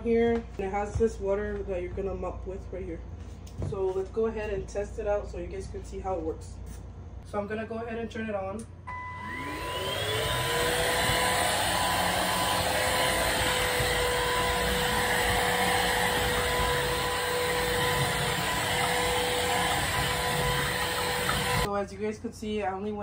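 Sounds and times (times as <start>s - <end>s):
vacuum mop motor whine: 8.9s - 21.7s.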